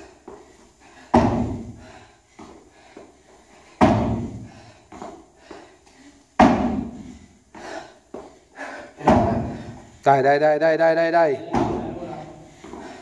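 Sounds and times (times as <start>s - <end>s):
feet thudding on wooden box: 1.0s - 3.1s, 3.7s - 5.8s, 6.4s - 8.4s, 9.0s - 9.9s, 11.4s - 13.0s.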